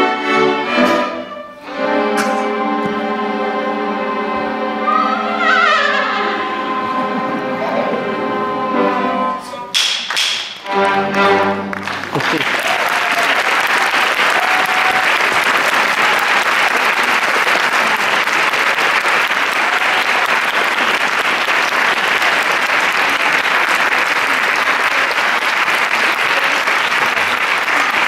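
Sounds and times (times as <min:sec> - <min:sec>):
audience applauding: 0:10.1 - 0:28.0.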